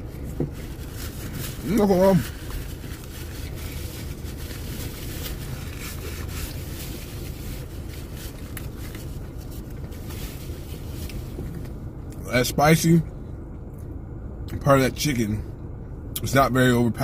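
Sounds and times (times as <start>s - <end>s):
car cabin low rumble: 0.0s - 17.0s
paper wrapper rustling: 0.5s - 11.1s
person chewing sandwich: 2.3s - 11.2s.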